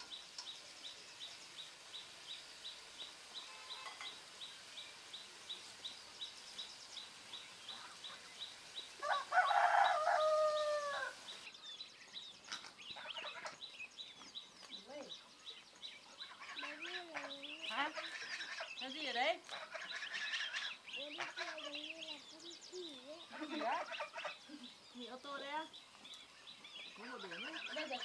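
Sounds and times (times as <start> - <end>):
rooster crowing: 9.0 - 11.2.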